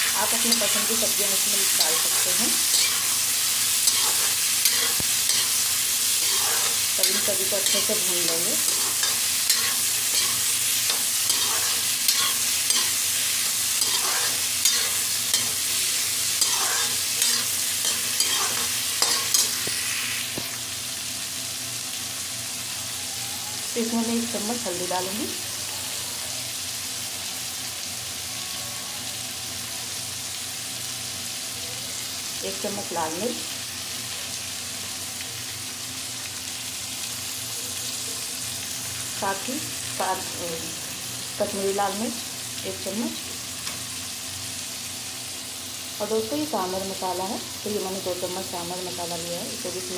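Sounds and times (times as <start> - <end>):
vegetables sizzling in oil: 0.0 - 49.9
spatula scraping metal pan: 6.2 - 13.0, 13.8 - 15.6, 16.4 - 19.6.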